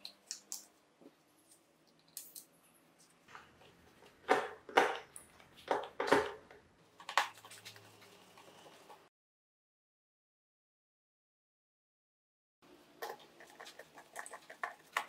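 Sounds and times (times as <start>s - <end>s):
clicks and rustles of handling wires: 1.4s - 9.1s.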